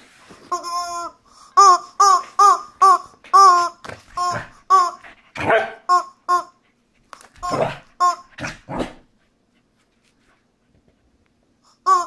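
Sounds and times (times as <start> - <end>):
squeak toy honking: 0.5 - 5.1, 5.9 - 6.6, 7.4 - 8.4
dog barking: 5.4 - 5.9.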